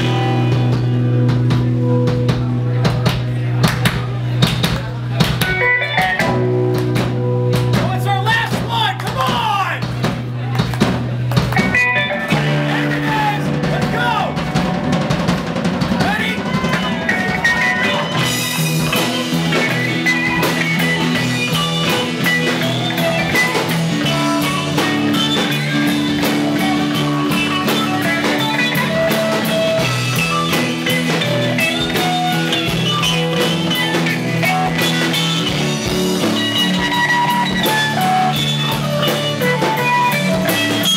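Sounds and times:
live rock band playing: 0.0 - 40.9.

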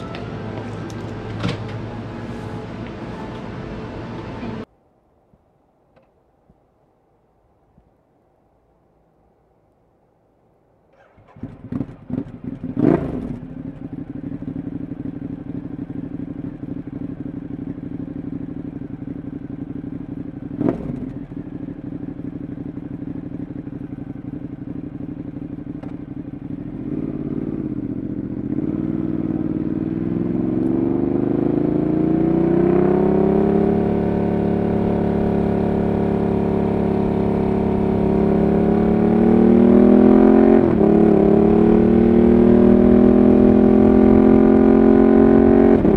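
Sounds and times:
motorcycle accelerating: 0.0 - 4.7, 10.9 - 45.9
motorcycle engine cranking: 10.9 - 12.5
motorcycle engine idling: 11.0 - 30.6.

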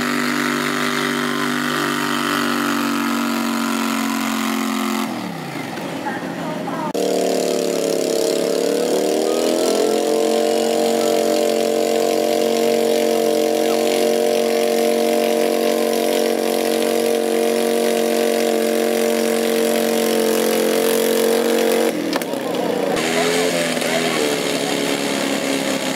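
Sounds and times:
tractor engine at high revs: 0.0 - 25.9.

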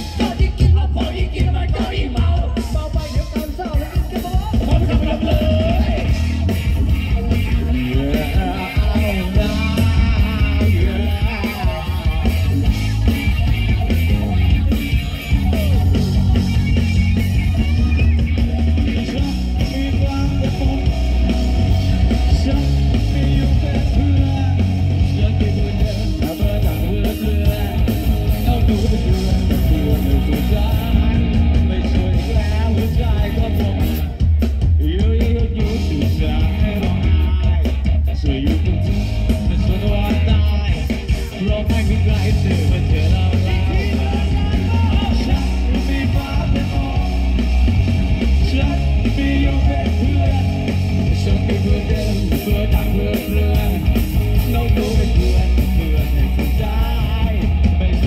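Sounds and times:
man singing: 0.0 - 58.0
rock band playing live: 0.0 - 58.0.

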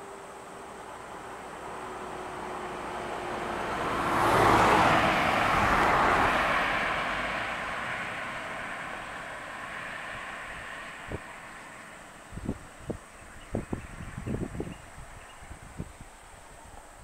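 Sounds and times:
box truck driving past: 1.2 - 11.2.

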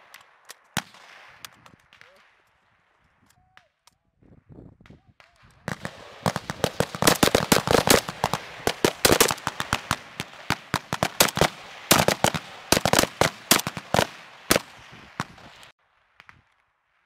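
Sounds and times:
rifles shooting: 5.2 - 15.7.

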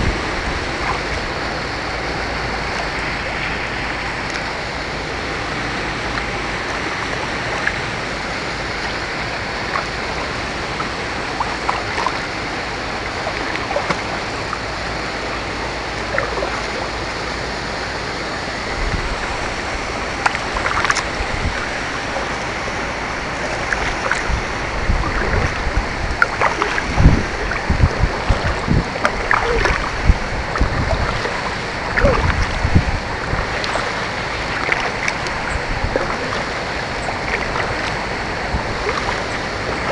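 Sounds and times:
paddle splashing water: 0.0 - 39.9.

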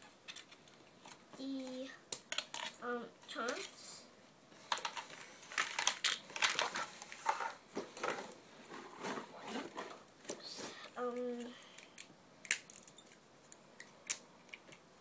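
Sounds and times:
plastic track pieces clattering: 4.7 - 7.6
cardboard packaging rustling: 4.7 - 10.0.

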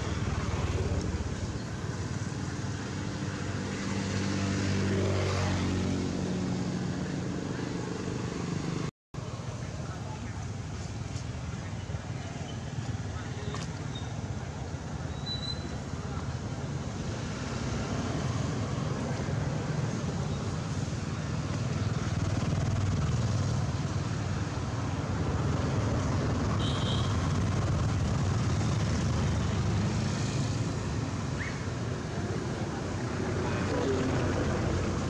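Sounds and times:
faint high squeaks: 15.1 - 15.8.

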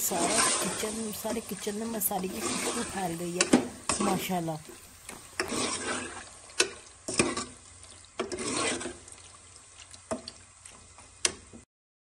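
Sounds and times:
spoon scraping wet food: 2.2 - 4.4, 5.1 - 10.8.

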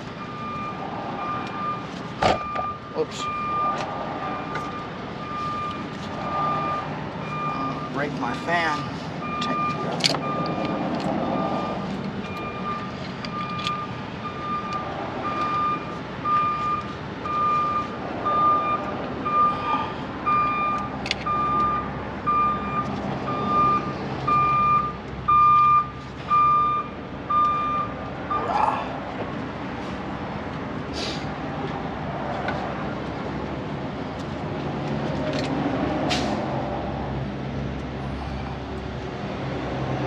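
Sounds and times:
vehicle backup alarm beeping: 0.0 - 28.8.

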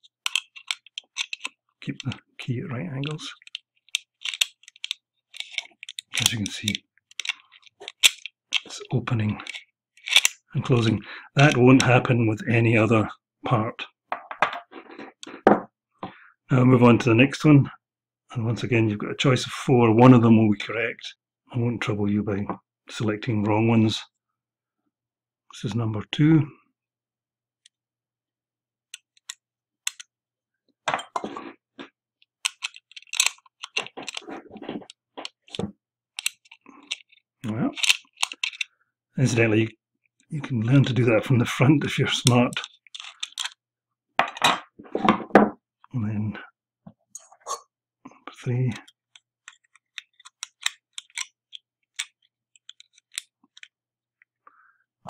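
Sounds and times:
metal lock parts clicking: 0.0 - 2.2, 3.0 - 8.8, 9.4 - 10.4, 28.9 - 30.1, 32.4 - 35.6, 36.2 - 38.7, 42.2 - 43.6, 48.8 - 53.8.

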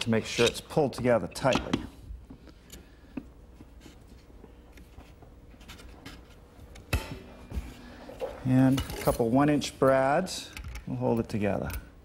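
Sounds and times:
clamp scraping and handling: 0.0 - 0.7.

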